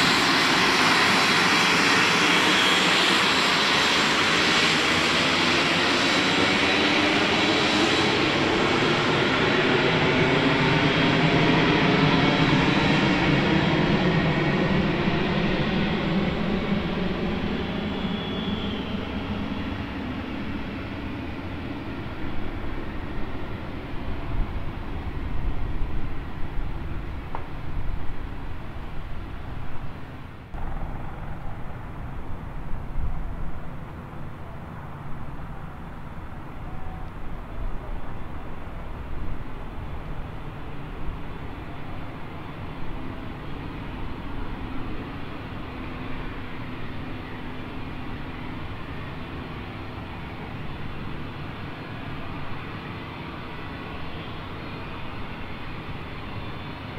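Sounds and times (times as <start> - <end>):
faint high jet whine: 0.0 - 56.9
jet engine rumble: 0.0 - 56.9
low rumble: 30.5 - 34.0.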